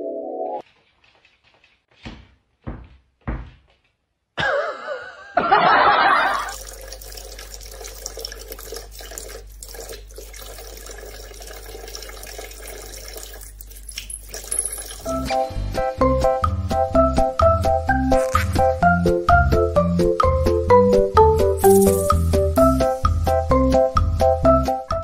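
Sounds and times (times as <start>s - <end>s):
soft knocks: 2.0s - 3.8s.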